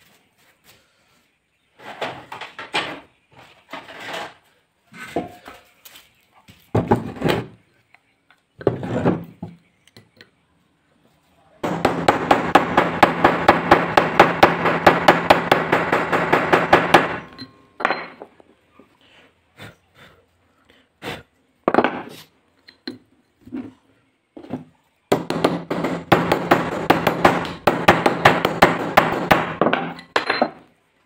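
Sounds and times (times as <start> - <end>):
knocks and handling of parts: 1.8 - 4.4, 6.7 - 7.6, 11.6 - 18.6, 21.7 - 23.8, 24.4 - 30.8.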